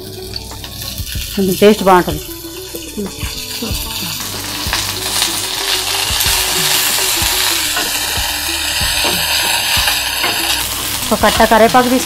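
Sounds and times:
leaves sizzling in hot oil: 0.0s - 12.0s
spatula scraping a pan: 3.8s - 11.6s.

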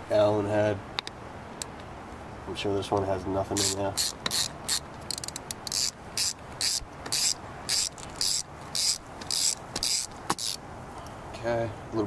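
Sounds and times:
ratchet pawl clicks: 3.6s - 10.6s.

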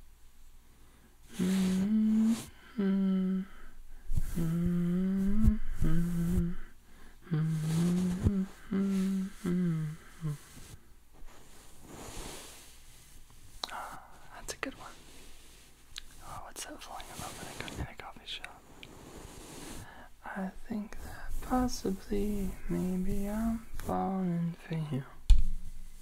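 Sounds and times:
man humming: 1.3s - 10.8s, 21.4s - 25.0s.

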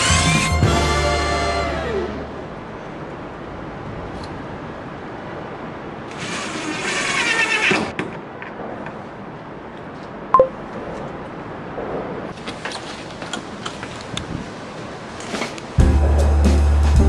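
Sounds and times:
power drill running: 6.1s - 7.9s.

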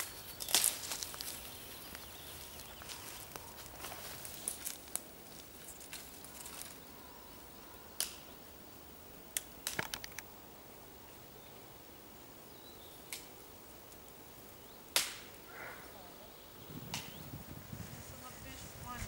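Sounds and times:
twigs cracking underfoot: 0.0s - 6.8s, 9.4s - 10.3s.

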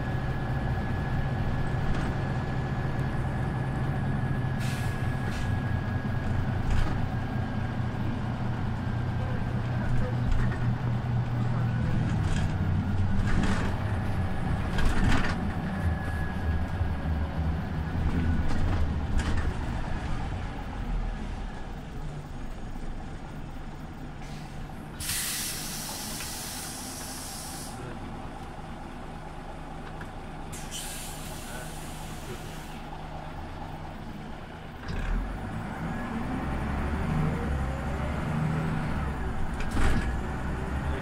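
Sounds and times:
bus engine running: 0.0s - 41.0s
compressed air hissing: 24.2s - 27.8s, 30.6s - 32.8s.

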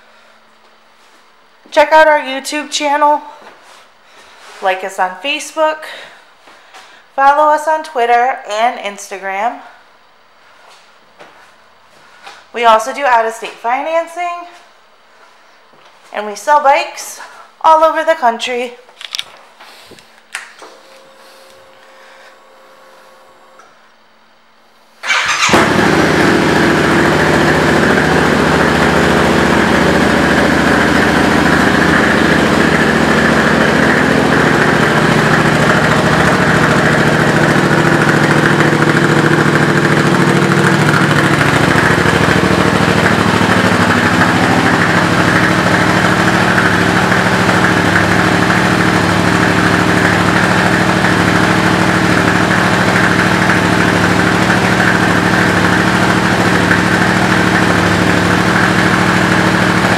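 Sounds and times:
motorcycle engine idling: 25.0s - 59.9s.

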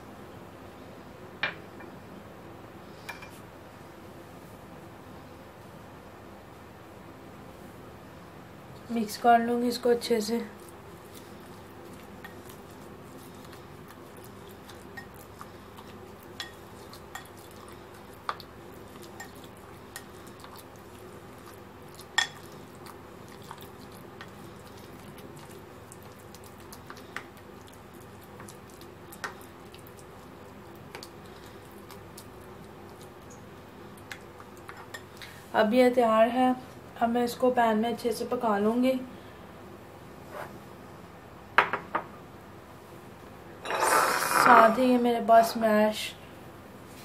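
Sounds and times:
spoon stirring wet mince: 9.7s - 35.2s.

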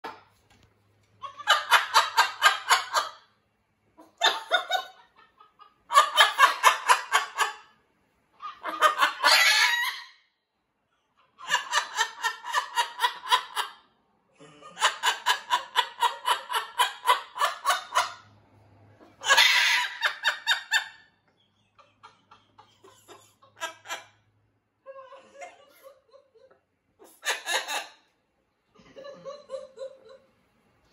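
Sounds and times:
parrot imitating laughter: 4.0s - 7.7s, 8.4s - 10.1s, 11.2s - 13.8s, 14.8s - 18.1s, 19.1s - 21.0s, 22.0s - 24.2s, 24.8s - 28.1s.

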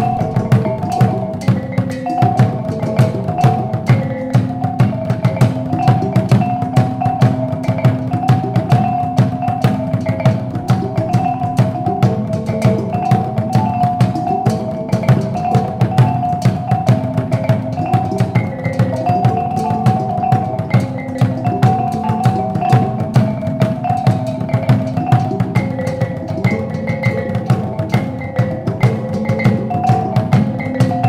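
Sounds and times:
low ringing hanging gongs: 0.0s - 7.4s
drum: 0.0s - 31.0s
small gongs playing melody: 0.0s - 31.0s.

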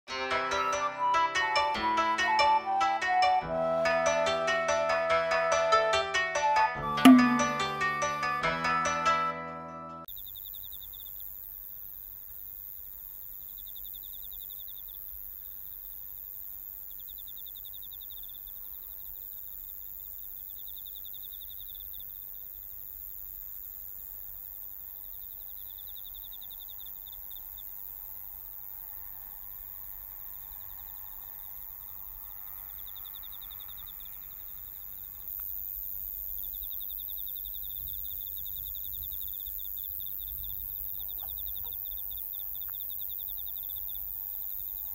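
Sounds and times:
cricket chirping: 10.0s - 44.9s
faint outdoor air hiss: 10.0s - 44.9s.

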